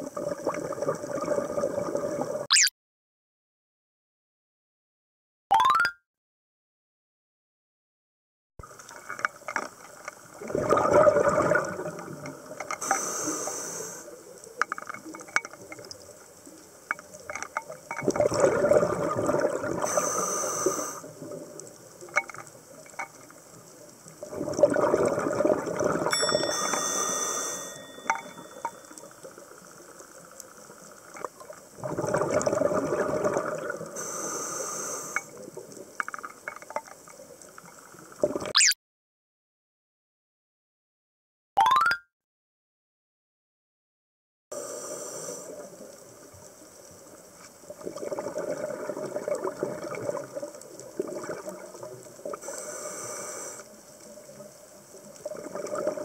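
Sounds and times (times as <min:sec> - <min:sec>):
exhaled bubbles: 0:00.0 - 0:02.7, 0:10.3 - 0:12.6, 0:17.9 - 0:20.0, 0:24.2 - 0:26.8, 0:31.3 - 0:34.0, 0:38.2 - 0:38.8, 0:47.7 - 0:52.5, 0:55.2 - 0:56.0
small clicks and crackles: 0:08.6 - 0:10.4, 0:11.4 - 0:18.4, 0:20.7 - 0:25.6, 0:26.6 - 0:38.3, 0:45.3 - 0:56.0
diver breathing through regulator: 0:12.8 - 0:14.1, 0:19.8 - 0:21.1, 0:34.0 - 0:35.4, 0:44.6 - 0:45.7, 0:52.4 - 0:53.7.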